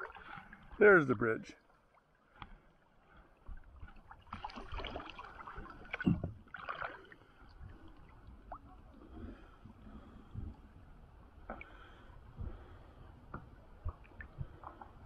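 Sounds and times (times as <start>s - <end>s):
water sloshing around kayak: 0.0s - 15.0s
paddle splashes: 1.6s - 9.5s.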